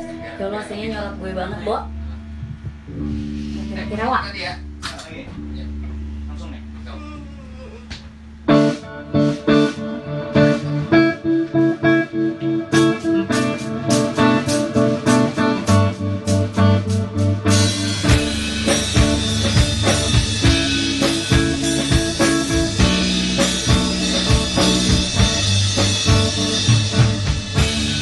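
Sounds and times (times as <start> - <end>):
drums and band playing: 0.0 - 6.1, 7.9 - 28.0
guitar picked pattern: 7.9 - 28.0.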